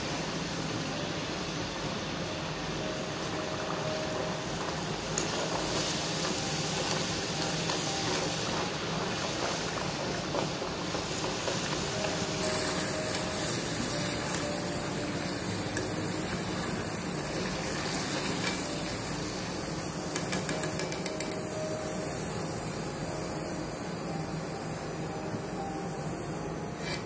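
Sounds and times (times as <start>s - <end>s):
fries sizzling in hot oil: 0.0s - 27.0s
skimmer tapping metal pan: 20.1s - 21.4s.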